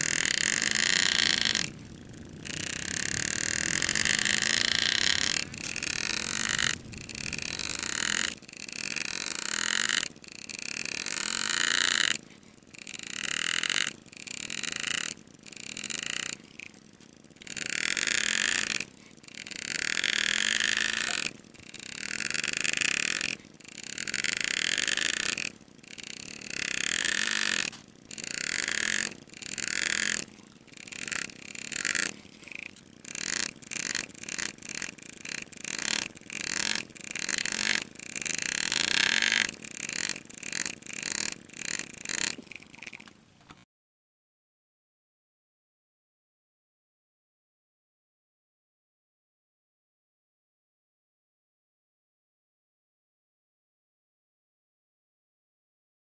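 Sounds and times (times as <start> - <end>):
graver cutting into metal: 0.0 - 9.9, 33.2 - 42.9.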